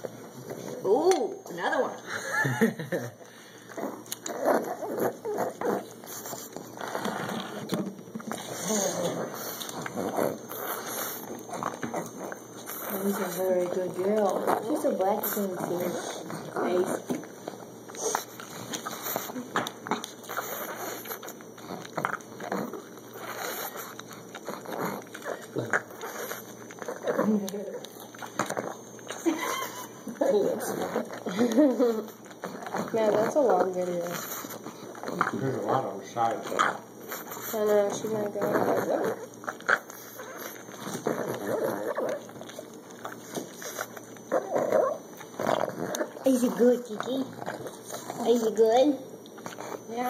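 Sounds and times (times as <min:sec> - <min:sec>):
puppy crunching corn cob: 0:03.7 - 0:48.6.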